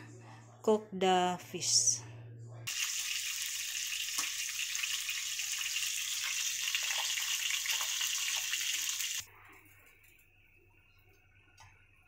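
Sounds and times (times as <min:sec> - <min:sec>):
fish frying in hot oil: 0:02.7 - 0:09.2.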